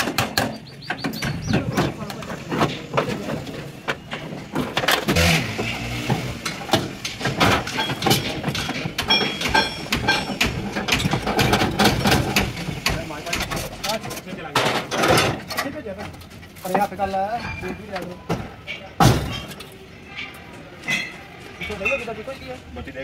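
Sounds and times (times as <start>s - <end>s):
people talking in background: 12.8s - 23.0s.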